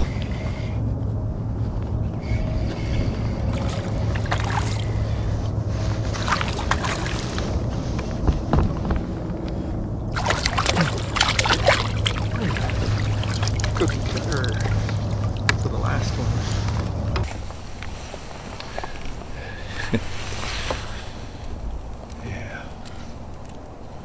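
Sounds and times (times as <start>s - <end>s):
fish splashing in water: 3.3s - 5.2s, 6.1s - 7.6s, 10.1s - 15.6s.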